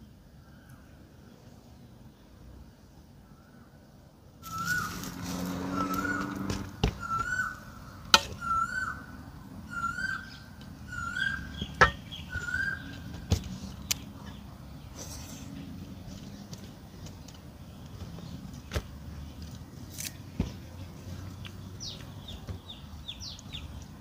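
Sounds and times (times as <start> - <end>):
bird whistled call: 4.4 - 7.7, 8.4 - 9.1, 9.7 - 13.0.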